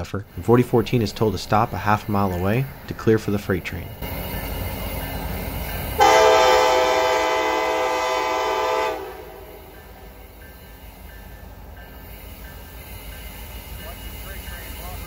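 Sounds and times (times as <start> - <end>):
train rumbling: 0.0 - 15.0
locomotive air horn blast: 6.0 - 9.7.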